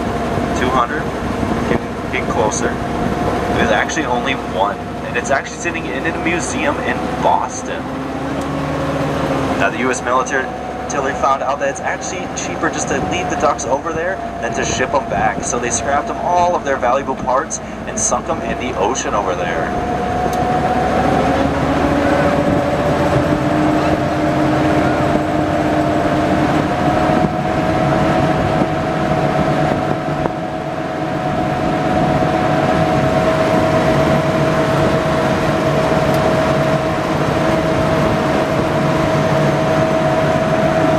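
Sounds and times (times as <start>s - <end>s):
vehicle engine droning: 0.0s - 40.9s
wind rushing: 19.5s - 40.9s.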